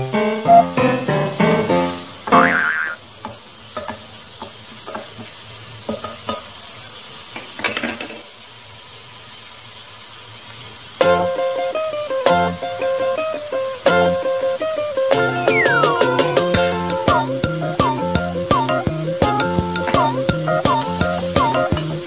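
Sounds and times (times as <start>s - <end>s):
music: 0.0s - 2.2s, 11.0s - 22.0s
vegetables sizzling in oil: 0.0s - 22.0s
spatula scraping and tapping pan: 3.2s - 6.5s.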